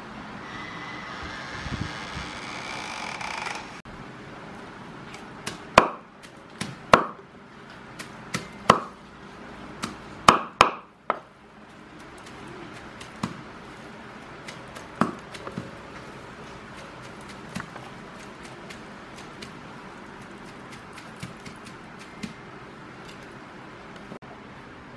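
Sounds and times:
cleaver chopping on wooden board: 0:05.5 - 0:07.2, 0:08.4 - 0:09.0, 0:09.8 - 0:11.3, 0:14.5 - 0:15.7.

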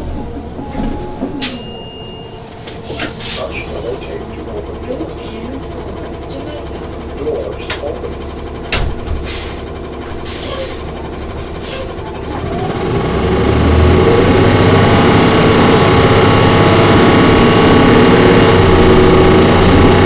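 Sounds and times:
bus engine pulling away: 0:00.0 - 0:20.0
air brake hisses: 0:03.0 - 0:04.0, 0:09.2 - 0:12.0.

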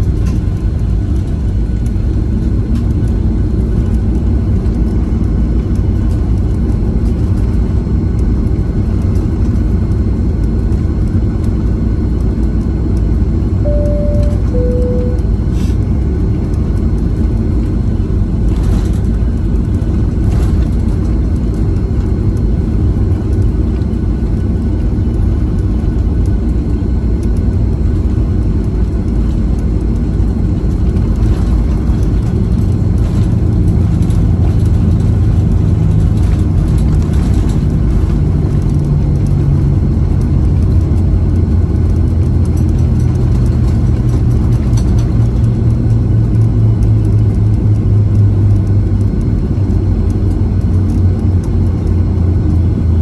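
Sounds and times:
jet engine noise in cabin: 0:00.0 - 0:53.0
two-note high-low chime: 0:13.6 - 0:15.5.

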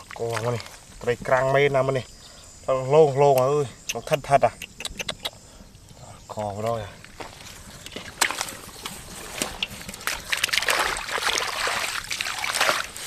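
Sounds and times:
hands splashing in muddy water: 0:08.0 - 0:13.0.

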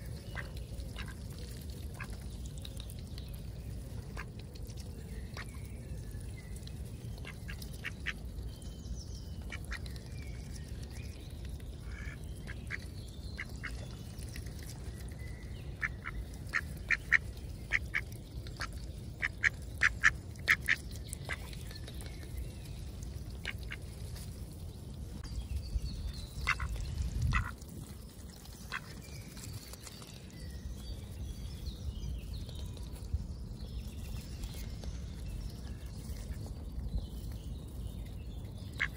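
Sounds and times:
steady low rumble: 0:00.0 - 0:38.9
ducks quacking: 0:26.4 - 0:26.7.

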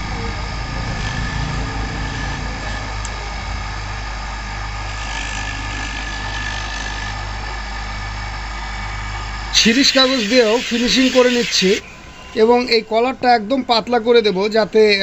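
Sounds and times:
bench grinder motor humming: 0:00.0 - 0:13.4
grinding hiss: 0:09.5 - 0:11.9.

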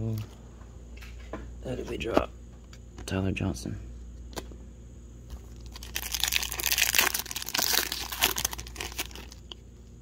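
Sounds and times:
plastic wrapper tearing and crinkling: 0:05.5 - 0:09.6.

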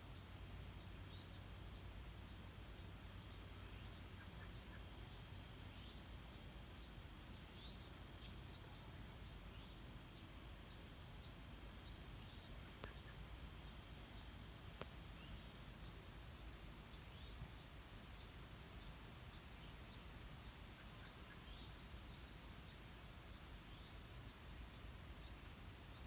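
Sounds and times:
faint bird chirps: 0:00.0 - 0:22.8
insects trilling: 0:00.0 - 0:26.0.

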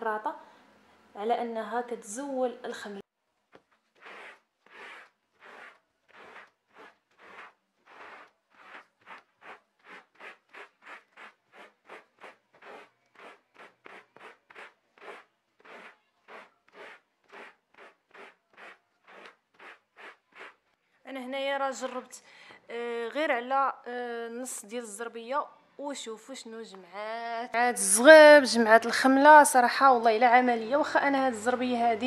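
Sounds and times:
squeegee scraping carpet: 0:03.7 - 0:20.6.

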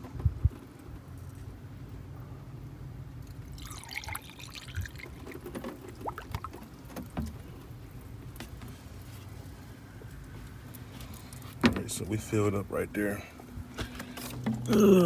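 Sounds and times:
liquid glugging and trickling: 0:03.2 - 0:07.3.

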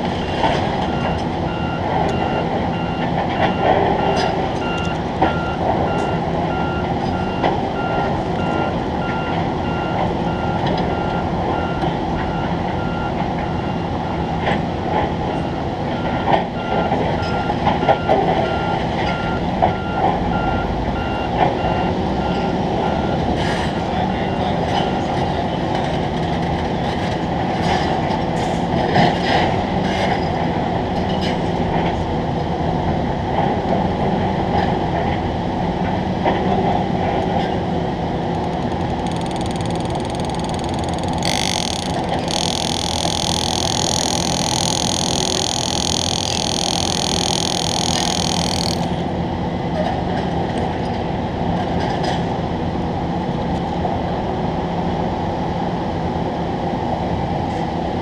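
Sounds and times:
reversing alarm beeping: 0:00.8 - 0:14.4, 0:15.2 - 0:23.2, 0:38.3 - 0:49.0
sharp clicks and rattles: 0:38.2 - 0:49.0.

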